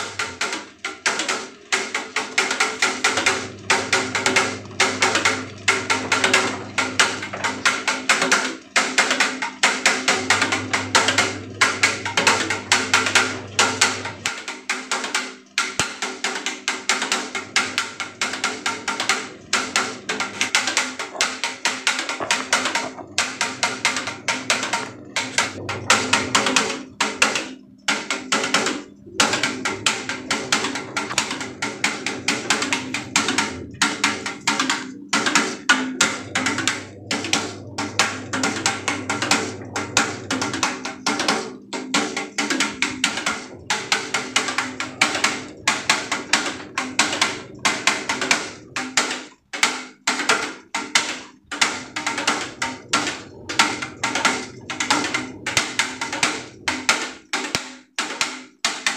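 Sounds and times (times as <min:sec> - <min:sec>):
propeller fans humming: 0:17.1 - 0:48.8, 0:51.3 - 0:57.6.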